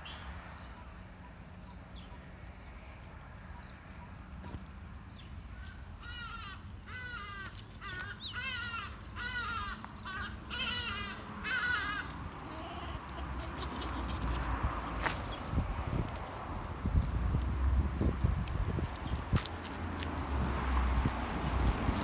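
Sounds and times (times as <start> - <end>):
animal cawing cry: 5.6 - 14.3.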